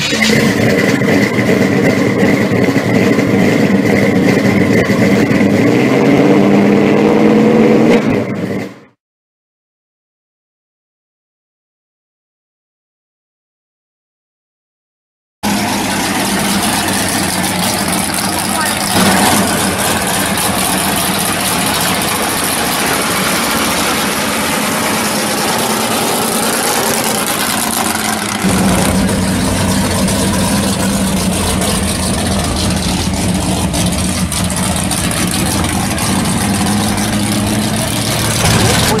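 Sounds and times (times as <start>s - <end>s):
car engines idling: 0.0s - 6.0s, 15.4s - 39.0s.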